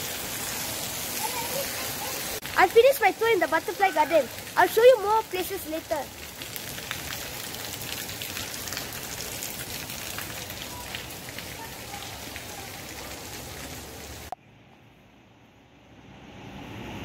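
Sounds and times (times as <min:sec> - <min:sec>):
water droplets on plants: 0:01.2 - 0:14.4.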